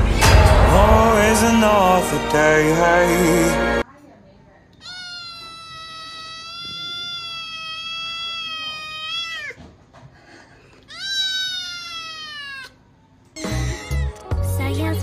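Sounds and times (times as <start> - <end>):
loud sound: 0.0 - 3.8
kitten meowing: 4.8 - 9.6, 10.9 - 12.8, 13.4 - 14.4.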